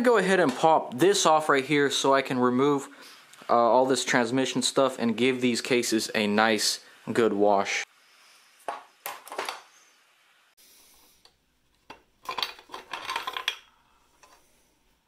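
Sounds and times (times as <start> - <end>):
metal engine parts clinking: 11.8 - 14.5.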